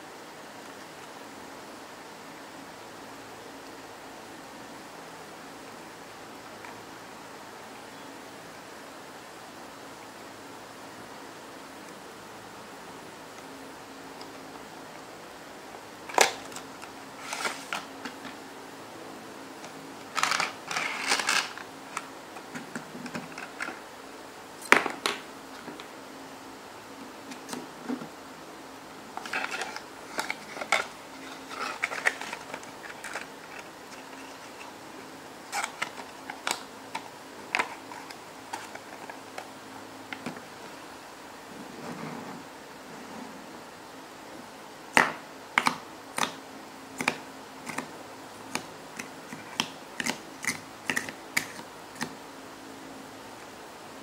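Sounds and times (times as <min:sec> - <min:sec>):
packaging rustling: 0:20.1 - 0:21.7, 0:29.2 - 0:34.7.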